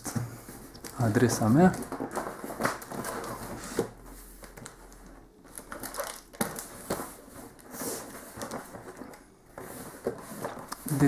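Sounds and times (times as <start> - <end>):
cardboard and tape rustling: 0.0 - 11.0.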